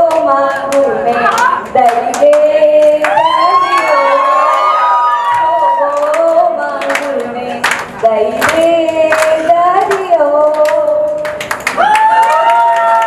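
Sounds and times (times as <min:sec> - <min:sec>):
woman singing into microphone: 0:00.0 - 0:11.4
hand claps: 0:06.0 - 0:13.0.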